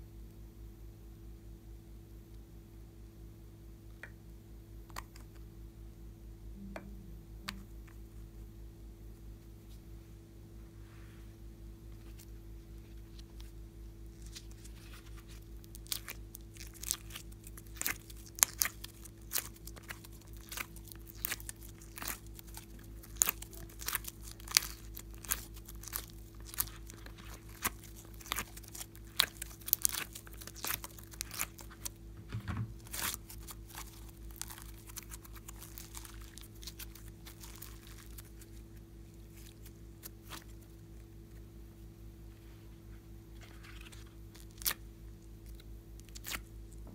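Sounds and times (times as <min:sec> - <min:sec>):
slime crackling and popping: 0:14.2 - 0:32.1, 0:32.8 - 0:41.1, 0:43.5 - 0:46.8.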